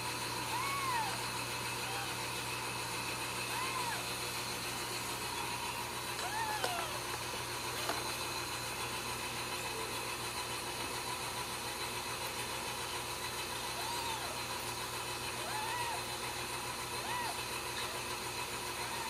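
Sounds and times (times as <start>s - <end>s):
kittens mewing: 0.4s - 2.4s, 3.3s - 4.4s, 5.2s - 7.2s, 13.6s - 19.0s.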